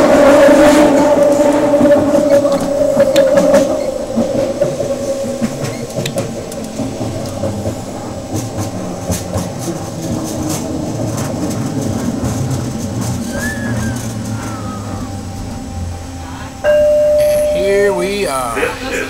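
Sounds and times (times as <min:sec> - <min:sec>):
wheel and rail clicks: 0:00.0 - 0:17.8
train running rumble: 0:00.0 - 0:19.0.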